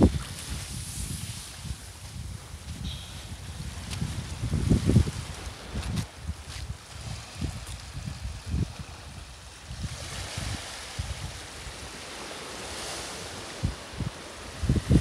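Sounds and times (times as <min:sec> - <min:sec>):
wind buffeting microphone: 0:00.0 - 0:15.0
waves washing over rocks: 0:06.7 - 0:15.0.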